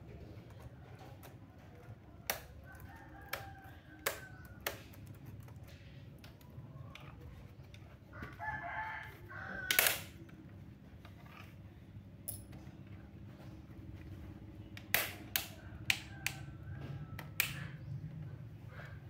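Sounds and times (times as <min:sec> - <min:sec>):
rooster crowing: 0:08.1 - 0:10.1, 0:15.6 - 0:17.7.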